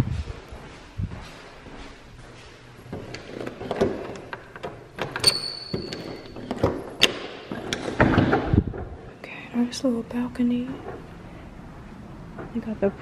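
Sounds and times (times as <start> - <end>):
door squeaking: 5.0 - 6.7.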